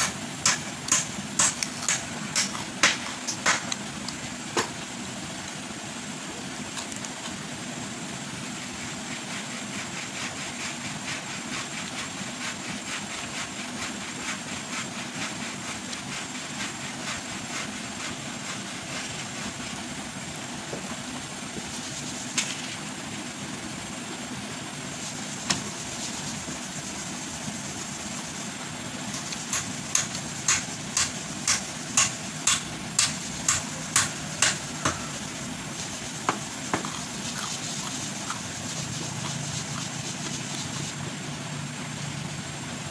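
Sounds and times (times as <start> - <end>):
sharp clicks in a mortar: 0.0 - 4.8, 29.1 - 35.0
steady background hum: 0.0 - 42.9
vegetables torn by hand: 0.9 - 4.2.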